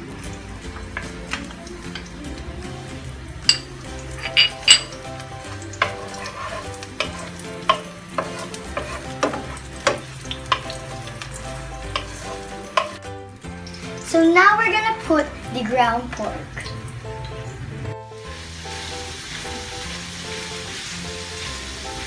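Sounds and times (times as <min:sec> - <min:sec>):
onion sizzling in oil: 0:00.0 - 0:22.0
spatula scraping a pan: 0:04.1 - 0:11.2, 0:11.8 - 0:13.0.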